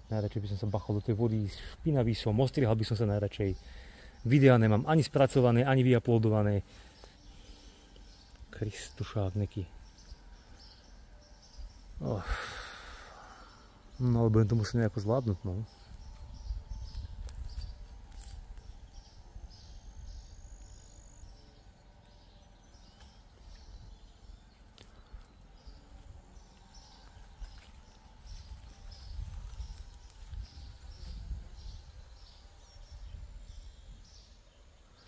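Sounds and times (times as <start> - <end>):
low rumble: 25.5 - 34.0.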